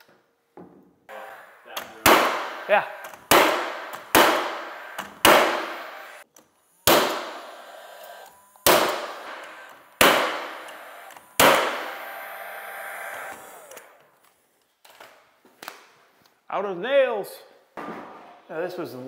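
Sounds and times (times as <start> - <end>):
nail gun firing: 1.7 - 6.2, 6.8 - 14.0.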